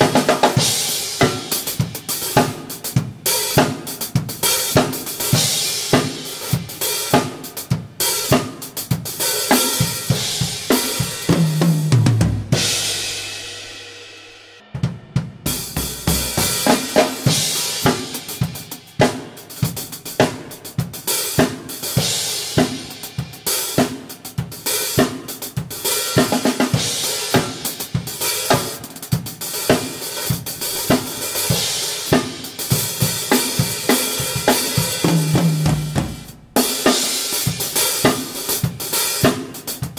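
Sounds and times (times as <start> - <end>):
drum kit beat: 0.0 - 39.9
tom fill: 0.0 - 39.9.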